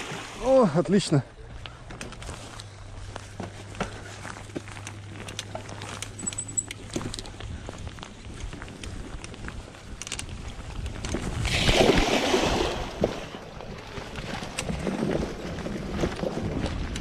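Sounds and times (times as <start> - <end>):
splashing water: 0.0 - 0.8, 11.4 - 13.7
bicycle tyres rolling over dirt: 1.1 - 17.0
bike rattling: 1.7 - 11.5, 13.2 - 17.0
wind buffeting microphone: 7.3 - 17.0.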